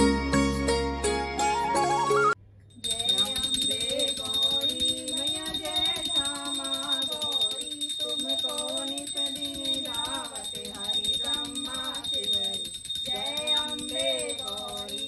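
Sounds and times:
small bell ringing rapidly: 2.8 - 15.0
person singing devotional song: 3.0 - 15.0.

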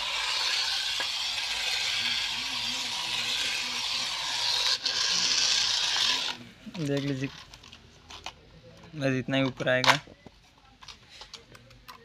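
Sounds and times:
toy electric motors whirring: 0.0 - 8.4.

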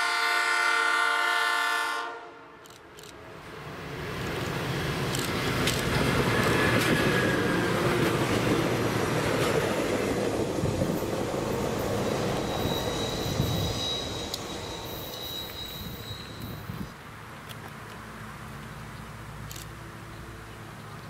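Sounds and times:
diesel railcar engine passing: 2.9 - 21.0
high steady tone: 11.6 - 16.9.

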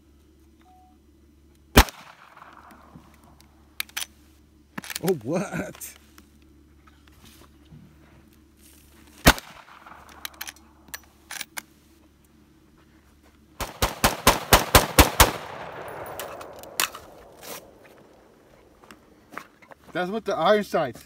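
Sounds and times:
rifle shots: 1.7 - 3.0, 9.2 - 10.6, 13.6 - 18.3
rapid semi-automatic gunfire: 1.8 - 2.9, 9.2 - 10.2, 13.6 - 17.8
gunshot echo: 1.8 - 3.0, 9.2 - 10.2, 13.6 - 17.8.

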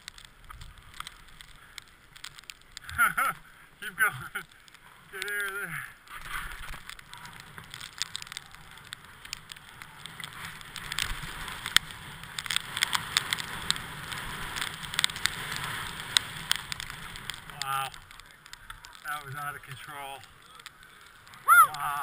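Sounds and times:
skis sliding over packed snow: 0.0 - 22.0.

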